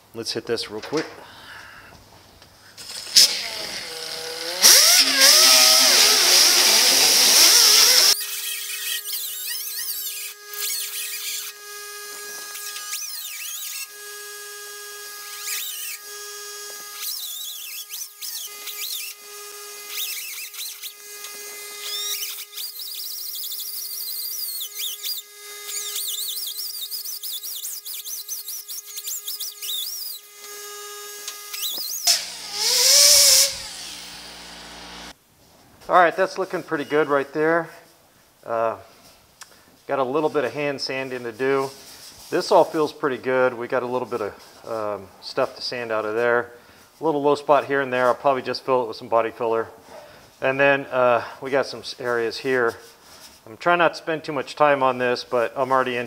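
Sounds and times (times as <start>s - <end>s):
die grinder high whine: 2.8s - 35.2s
disc squealing on metal: 4.6s - 14.0s, 15.3s - 16.1s, 17.0s - 19.2s, 19.8s - 21.0s, 21.8s - 30.3s, 36.7s - 37.3s.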